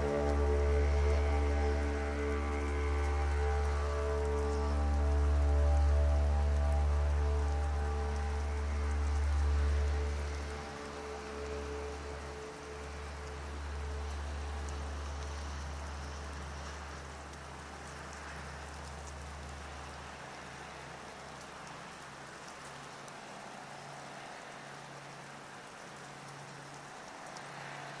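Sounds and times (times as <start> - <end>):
low didgeridoo drone: 0.0 - 17.2
steady rain-like hiss: 0.0 - 28.0.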